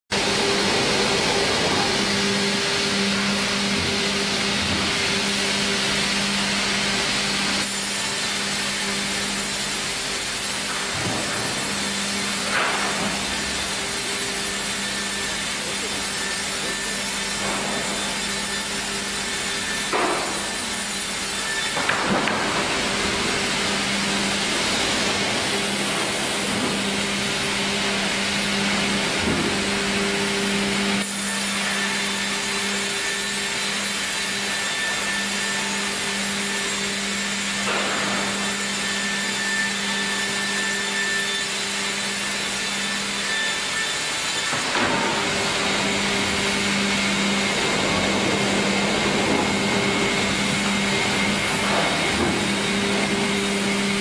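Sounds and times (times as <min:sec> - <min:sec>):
sawmill machinery running: 0:00.1 - 0:54.0.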